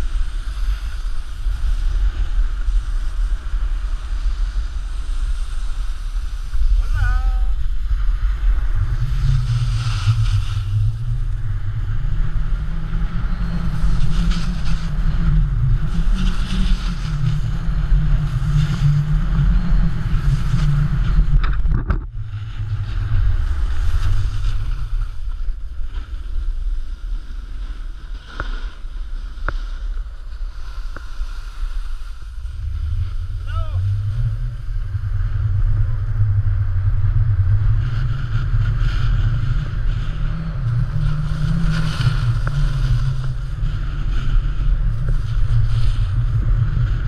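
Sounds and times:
snowboard hissing over snow: 0.0s - 11.3s, 12.0s - 21.1s, 22.9s - 34.9s, 37.9s - 47.0s
wind buffeting microphone: 0.0s - 28.2s, 28.8s - 47.0s.

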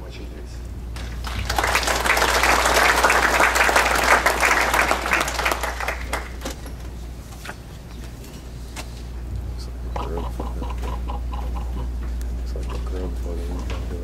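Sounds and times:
audience applauding: 1.0s - 6.4s.

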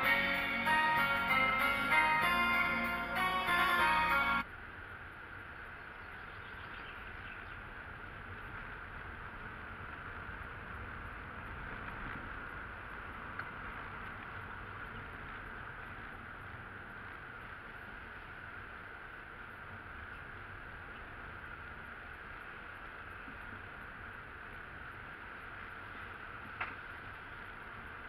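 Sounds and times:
car engine and tyre noise: 0.0s - 28.0s.

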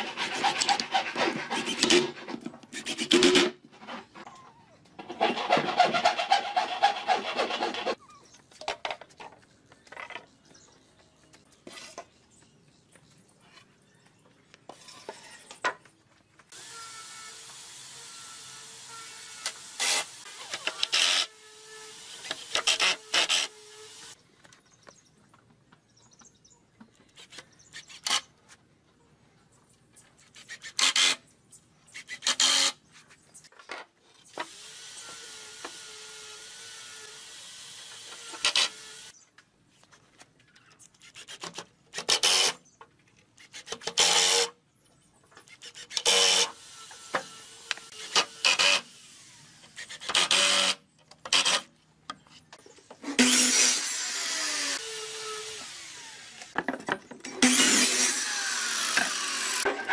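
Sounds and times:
rasping on wood: 0.0s - 2.2s, 5.1s - 8.0s.

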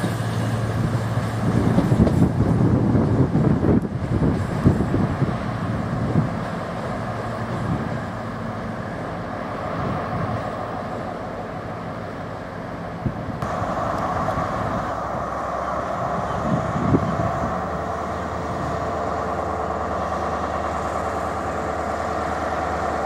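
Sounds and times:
diesel train engine rumble: 0.0s - 23.0s
locomotive idling hum: 0.0s - 23.0s.

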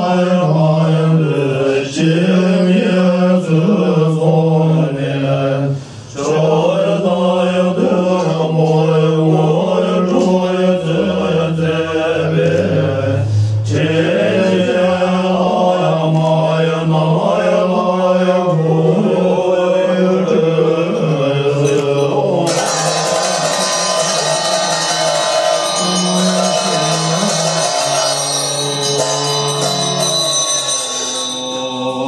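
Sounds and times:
monks chanting in unison: 0.0s - 32.0s
ringing bells: 21.6s - 32.0s
fast metallic rattle: 22.5s - 30.4s.

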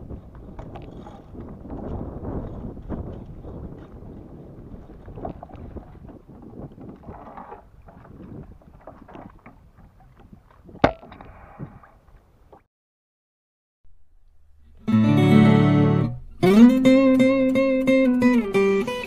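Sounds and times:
wind noise on microphone: 0.0s - 12.6s
strummed acoustic guitar music: 14.5s - 19.0s.

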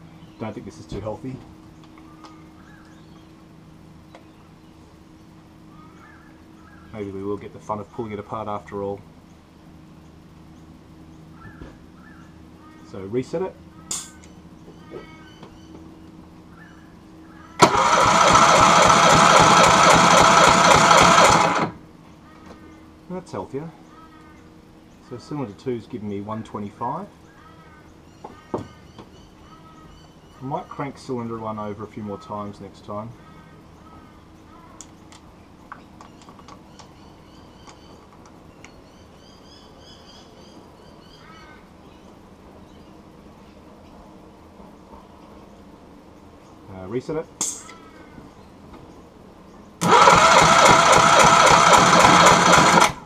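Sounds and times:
birds chirping: 0.0s - 17.6s, 21.9s - 49.8s
starter motor cranking engine: 17.6s - 21.8s, 49.8s - 53.0s.

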